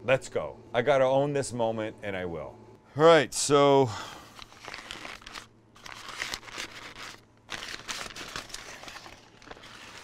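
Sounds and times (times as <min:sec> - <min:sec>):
paper rustling and crinkling: 0:04.3 - 0:10.0.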